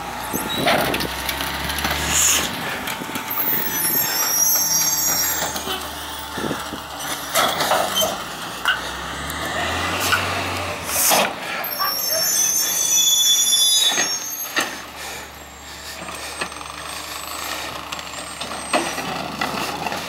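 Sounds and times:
garbage truck idling hum: 0.0 - 9.4, 13.8 - 20.0
faint high squeal: 3.4 - 5.9, 11.7 - 14.6.

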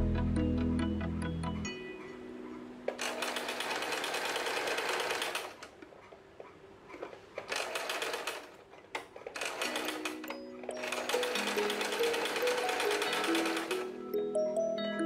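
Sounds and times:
sewing machine stitching: 2.9 - 5.7, 6.9 - 14.0.

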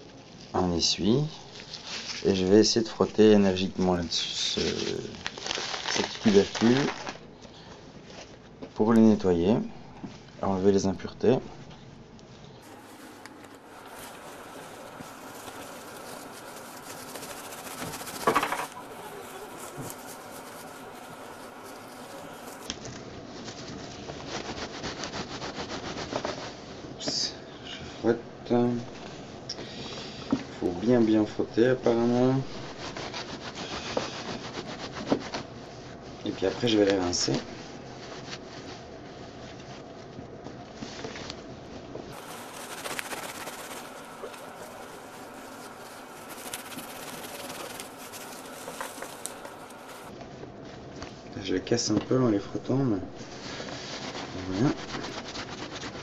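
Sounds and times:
salt rubbing in cloth towel: 12.6 - 22.7, 23.3 - 26.8, 32.0 - 39.8, 42.1 - 50.2, 53.2 - 56.0.

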